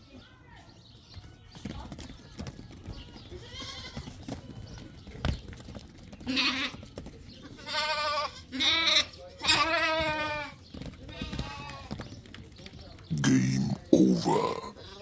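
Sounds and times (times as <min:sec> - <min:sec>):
sheep bleating: 0:03.4 - 0:04.0, 0:07.6 - 0:10.6.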